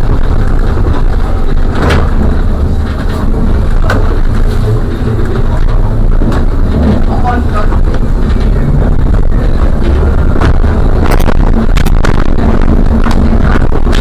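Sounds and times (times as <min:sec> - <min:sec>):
trolleybus rumbling: 0:00.0 - 0:14.0.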